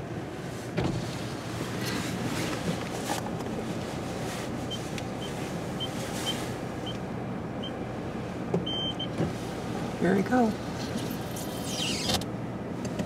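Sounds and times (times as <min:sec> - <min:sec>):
car engine idling: 0:00.0 - 0:13.0
long beep: 0:08.7 - 0:09.1
short high-pitched beeps: 0:08.7 - 0:09.1.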